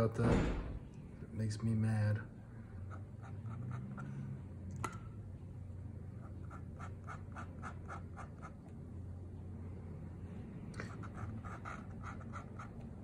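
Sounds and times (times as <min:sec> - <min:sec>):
pen scratching on paper: 0:02.9 - 0:04.1, 0:06.2 - 0:08.7, 0:10.8 - 0:13.0.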